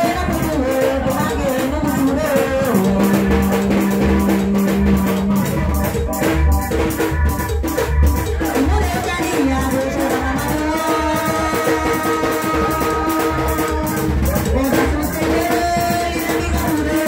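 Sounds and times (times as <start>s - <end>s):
woman singing into microphone: 0.0s - 6.0s, 8.2s - 17.0s
electronic keyboard backing: 0.0s - 17.0s
steady bass beat: 0.0s - 17.0s.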